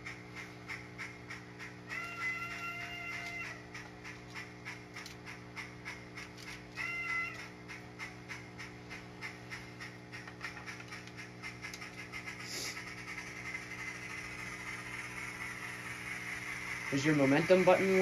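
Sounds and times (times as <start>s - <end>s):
model train low hum: 0.0s - 18.0s
regular ticking: 0.0s - 18.0s
hiss: 12.3s - 18.0s.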